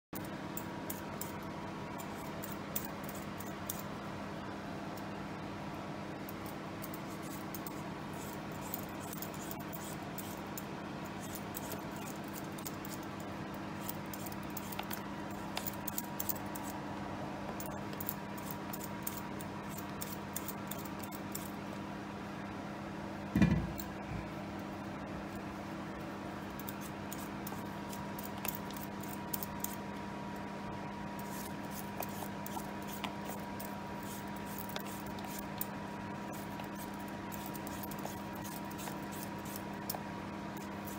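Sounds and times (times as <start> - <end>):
steady low hum: 0.1 - 40.9
peeler scraping potato skin: 6.4 - 16.8, 26.6 - 29.8, 31.2 - 40.9
loud thump: 23.4 - 23.8.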